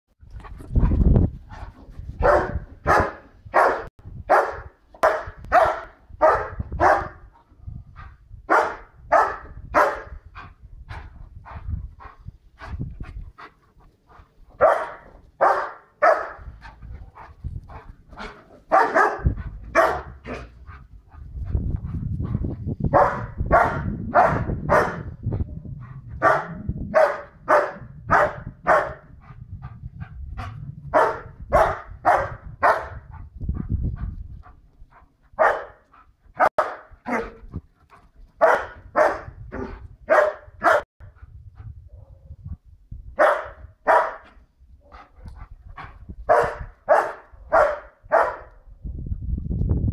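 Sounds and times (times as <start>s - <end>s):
dog barking loudly: 2.2s - 7.3s, 8.5s - 10.2s, 14.6s - 16.6s, 18.2s - 20.5s, 22.9s - 25.2s, 26.2s - 29.1s, 30.9s - 33.1s, 35.4s - 35.8s, 36.4s - 37.5s, 38.4s - 40.9s, 43.2s - 44.3s, 46.3s - 48.5s
low rumble: 19.3s - 27.0s.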